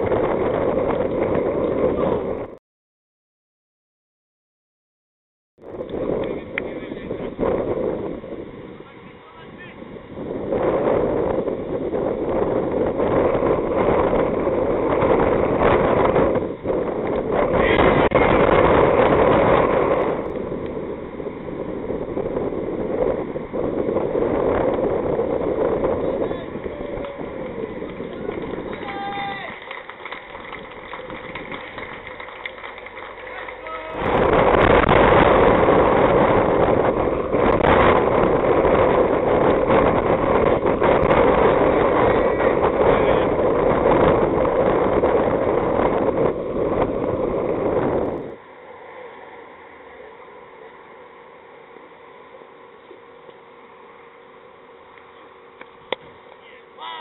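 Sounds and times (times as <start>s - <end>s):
wind buffeting microphone: 0.0s - 2.6s, 5.6s - 48.5s.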